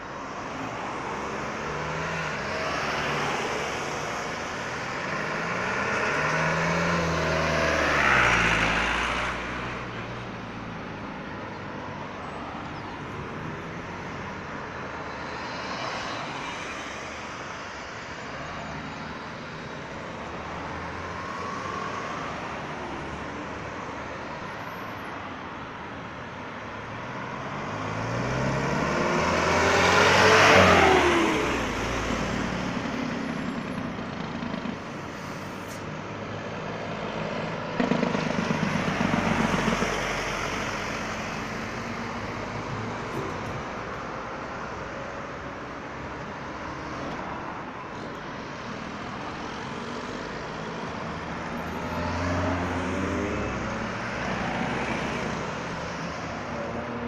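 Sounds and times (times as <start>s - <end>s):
cars passing: 0.0s - 57.0s
vehicle engine: 27.4s - 47.4s.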